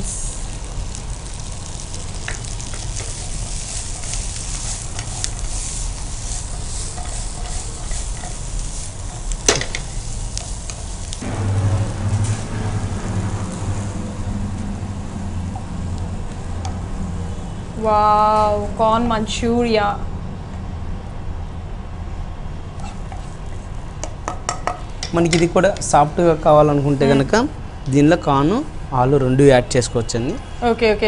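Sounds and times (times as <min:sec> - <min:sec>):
food sizzling in a frying pan: 0:00.0 - 0:17.4
low steady hum: 0:00.0 - 0:27.9
wooden spatula stirring food: 0:02.1 - 0:11.2.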